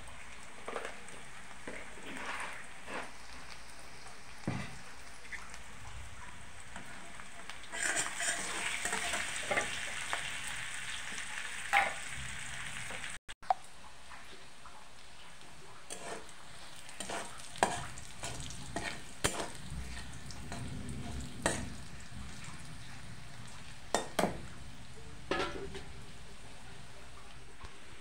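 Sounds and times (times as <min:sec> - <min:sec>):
onions sizzling in oil: 0:00.0 - 0:28.0
spatula scraping a pan: 0:01.6 - 0:03.4, 0:07.7 - 0:10.4, 0:15.9 - 0:24.4.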